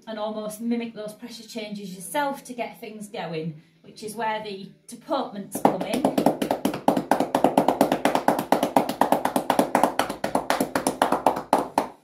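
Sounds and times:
hands rapidly patting horse: 5.6 - 12.0.

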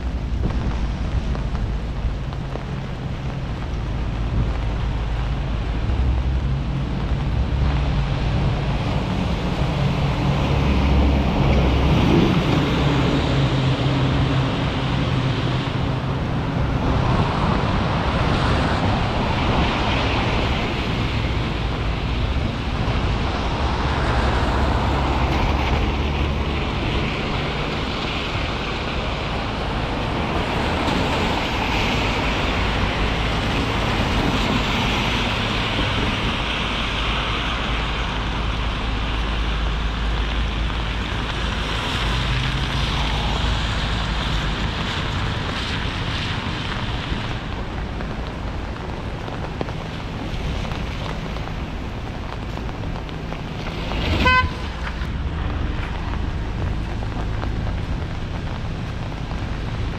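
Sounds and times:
low rumble: 0.0 - 59.9
rain hissing: 0.0 - 59.9
traffic on wet roads: 0.0 - 59.9
car horn toot: 54.2 - 54.7.

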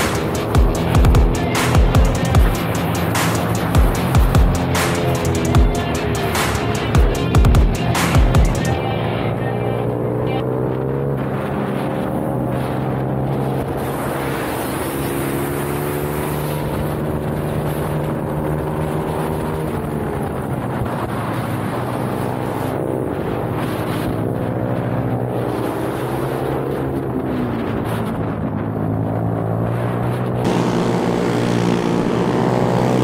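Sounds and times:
motorbike engine revving: 0.0 - 33.0
wind rushing over microphone: 0.0 - 33.0.

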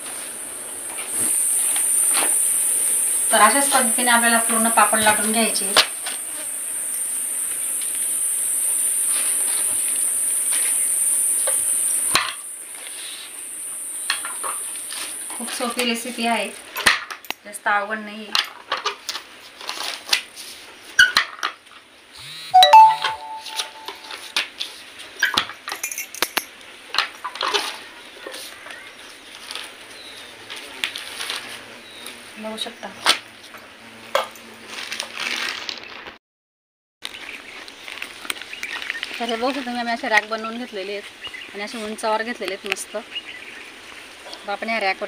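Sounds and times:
steady high hiss: 0.0 - 16.6.

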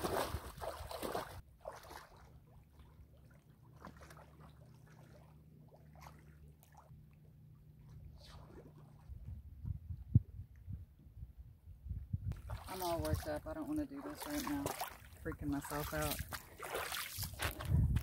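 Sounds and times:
footsteps splashing in water: 0.0 - 6.9, 12.3 - 18.0
low steady rumble: 2.3 - 13.8.

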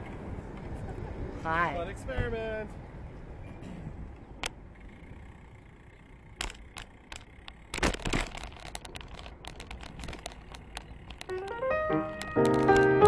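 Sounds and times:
bicycle rolling on rough pavement: 4.2 - 13.0
sharp clicks and knocks: 6.4 - 13.0.

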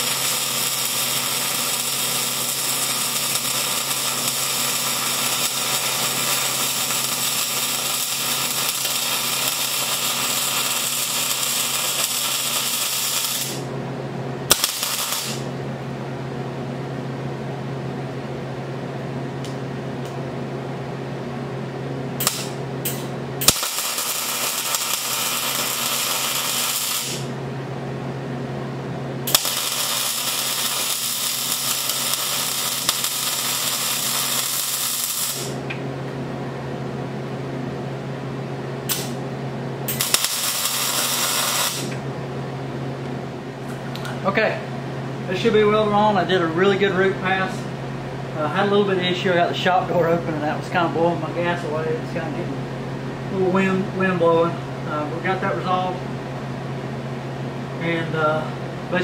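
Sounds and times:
welding arc crackling: 0.0 - 13.7, 14.4 - 15.5, 22.2 - 27.4, 29.2 - 35.7, 38.8 - 39.2, 39.9 - 42.0.

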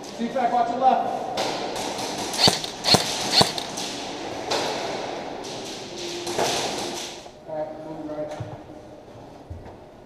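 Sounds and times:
hollow room background noise: 0.0 - 10.0
airsoft gunfire cracks: 2.4 - 3.8.

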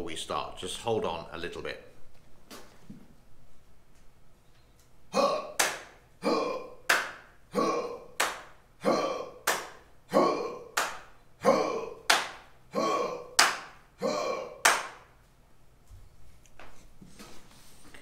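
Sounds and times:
group calling out in unison: 5.1 - 15.0.

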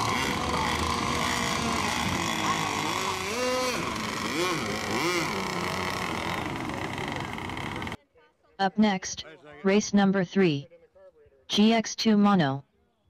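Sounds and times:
racing boat motor whining: 0.0 - 8.0
people's voices: 0.0 - 12.6.

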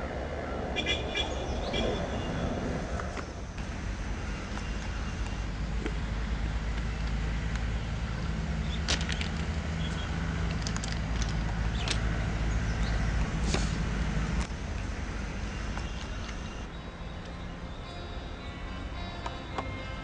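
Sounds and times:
wind on microphone: 0.0 - 3.6
faint drone: 0.0 - 8.9, 11.7 - 20.0.

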